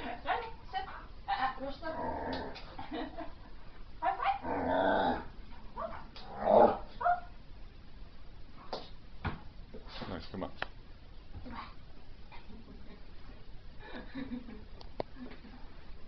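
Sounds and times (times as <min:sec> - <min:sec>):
dog growling: 0:01.8 - 0:02.7, 0:04.3 - 0:06.9.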